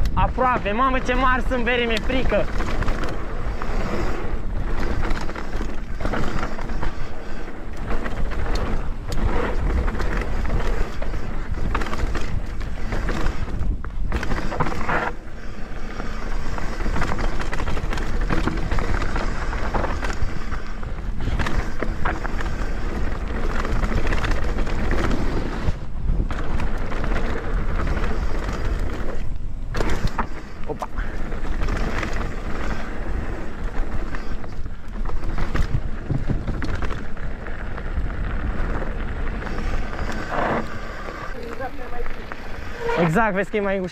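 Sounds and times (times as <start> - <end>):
bike clattering over bumps: 0.0 - 43.9
bike rolling on dirt trail: 0.0 - 43.9.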